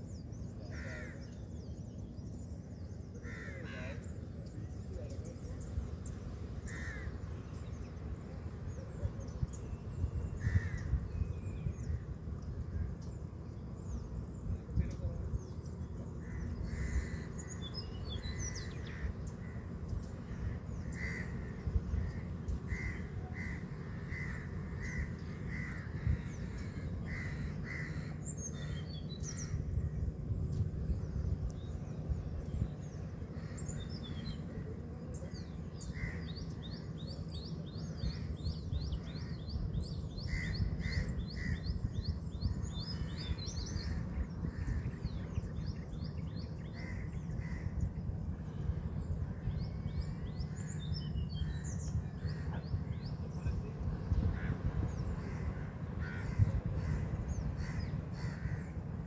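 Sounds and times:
small birds chirping: 0.0s - 59.0s
crows cawing: 0.7s - 1.3s, 3.2s - 4.0s, 6.6s - 7.2s, 10.4s - 10.9s, 16.2s - 17.6s, 20.3s - 29.6s, 35.9s - 36.3s, 40.2s - 41.6s, 46.7s - 47.8s, 54.3s - 58.8s.

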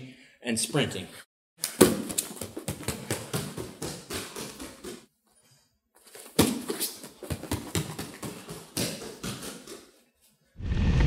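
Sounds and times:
bare feet slapping on mats: 1.6s - 5.1s, 6.1s - 10.0s.

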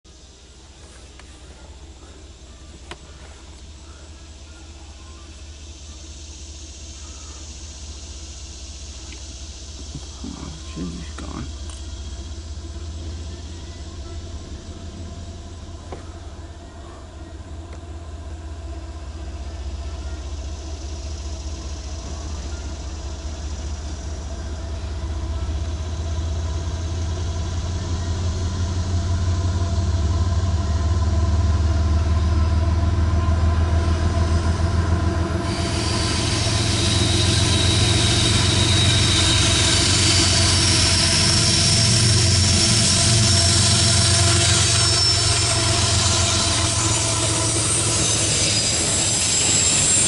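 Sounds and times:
diesel locomotive engine hum: 0.0s - 50.0s
rushing rail and wheel noise: 0.0s - 50.0s
high wheel squeal: 33.2s - 50.0s.

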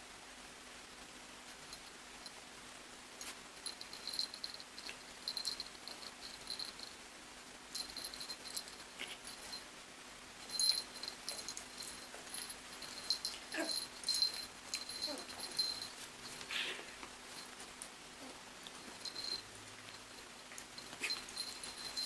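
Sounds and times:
paws scuffling and tags clicking: 18.6s - 22.0s.

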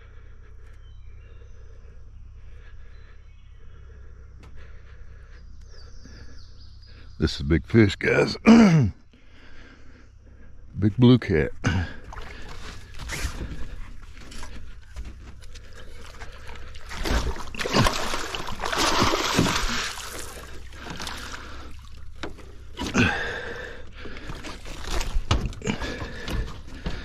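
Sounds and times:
fish thrashing and splashing in water: 12.0s - 27.0s.

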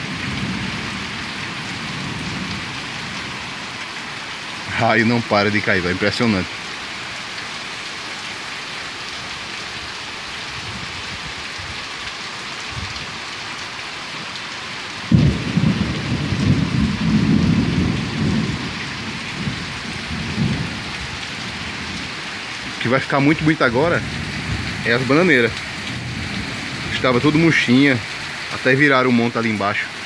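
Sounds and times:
heavy rain falling: 0.0s - 30.0s
thunder rumbling: 15.1s - 27.7s.

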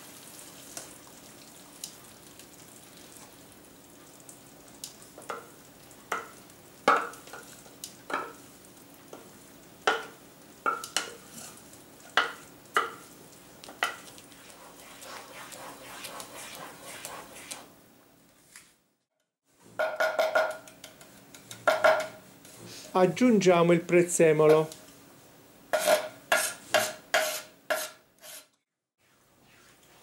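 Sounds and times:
faint pan sizzle: 0.0s - 18.7s, 19.5s - 28.4s
wooden spoon scraping blender jug: 14.3s - 17.7s.

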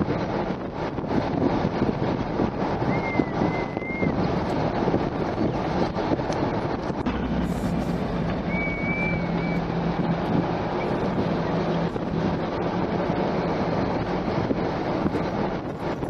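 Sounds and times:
car engine and road noise: 0.0s - 16.0s
wind rumbling on microphone: 0.0s - 16.0s
low hum: 3.9s - 14.6s
brief high whistle: 8.5s - 9.7s.

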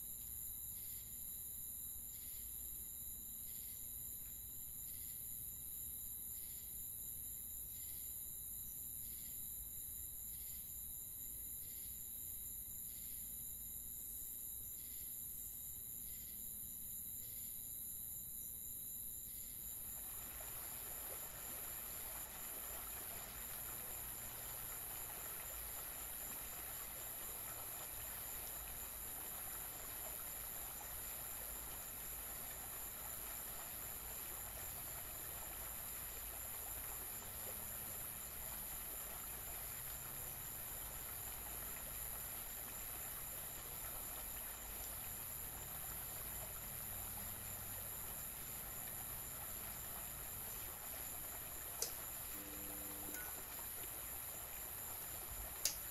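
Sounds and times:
thin steady whine: 19.0s - 55.9s
high-pitched electronic hiss: 50.1s - 55.9s
low hum: 51.8s - 53.6s.

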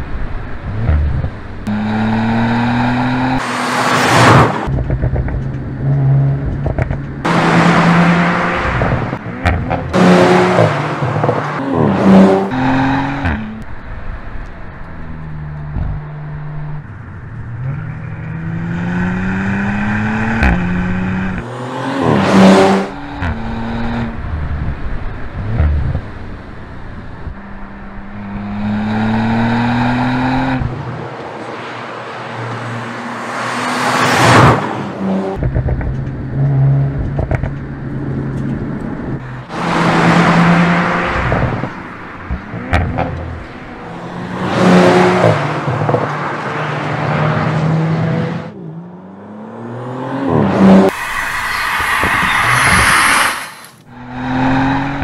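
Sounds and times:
car engine accelerating hard: 0.7s - 13.7s, 33.3s - 55.0s.

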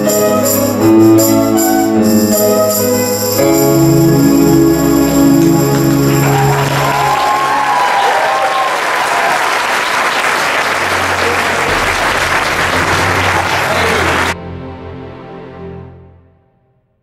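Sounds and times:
ensemble held notes: 0.0s - 7.7s, 11.1s - 16.1s
audience applauding: 5.0s - 14.4s.

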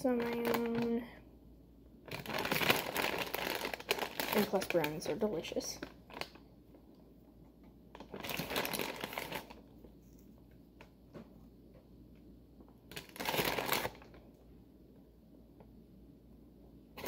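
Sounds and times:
plastic bag crinkling: 0.0s - 1.1s, 2.0s - 6.5s, 7.9s - 10.3s, 12.9s - 14.4s.

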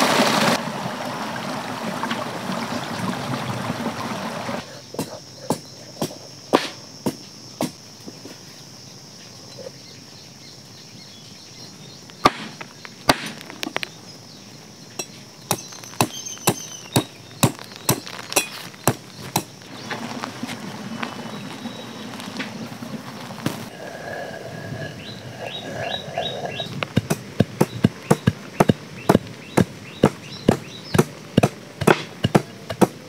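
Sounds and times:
insects buzzing: 0.0s - 33.0s
pestle striking stone mortar: 12.2s - 13.5s, 15.0s - 19.6s, 26.9s - 33.0s
knife chopping on wooden board: 26.9s - 33.0s.

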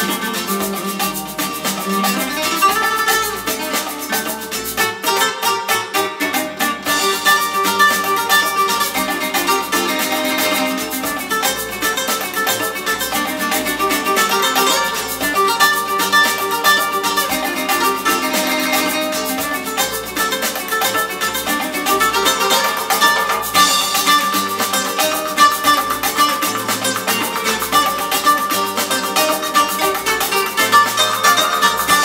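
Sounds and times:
plucked string music over loudspeakers: 0.0s - 32.0s.

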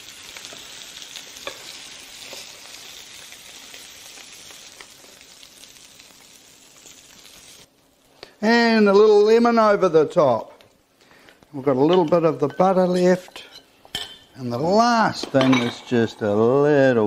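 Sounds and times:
seafood sizzling in grill pan: 0.0s - 8.1s.

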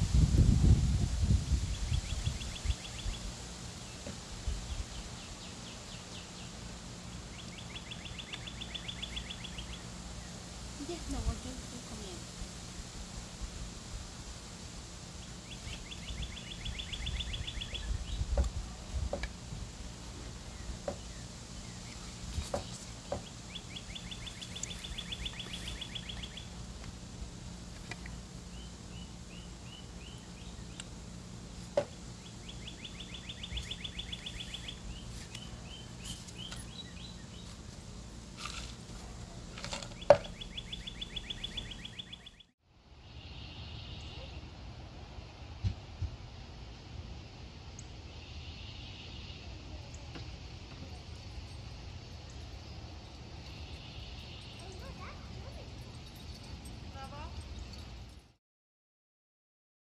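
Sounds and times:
songbird trilling: 1.6s - 4.1s, 7.2s - 12.2s, 15.2s - 18.4s, 20.5s - 26.6s, 28.0s - 30.9s, 31.8s - 37.6s, 39.7s - 42.5s
bird chirps: 1.6s - 11.3s, 15.2s - 18.4s, 20.5s - 26.6s, 31.8s - 37.6s, 39.7s - 42.5s, 43.2s - 44.4s, 52.3s - 58.2s.

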